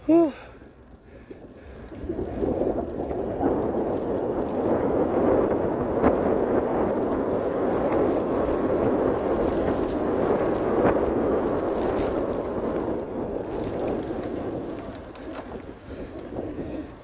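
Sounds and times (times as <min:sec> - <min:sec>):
bicycle tyre and wind noise: 0:00.0 - 0:17.0.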